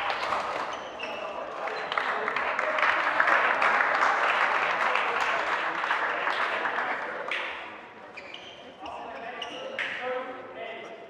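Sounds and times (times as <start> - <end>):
spectators applauding: 0.0 - 7.4.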